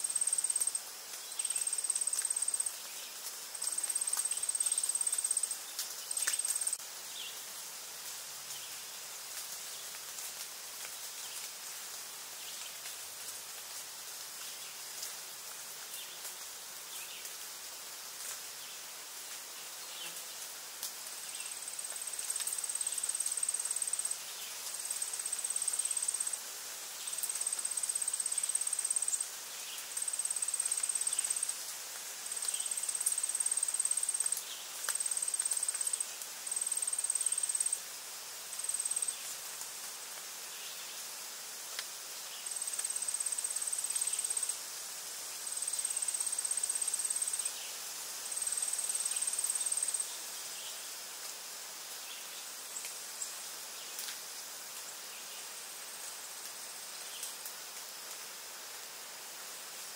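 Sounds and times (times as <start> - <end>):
high-pitched insect trill: 0.0 - 7.6, 21.1 - 39.6, 42.2 - 51.0.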